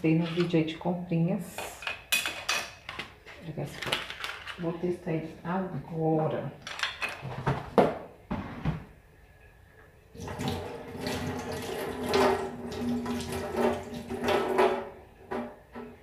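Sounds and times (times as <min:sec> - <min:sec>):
tap water splashing into metal sink: 0:10.2 - 0:15.4.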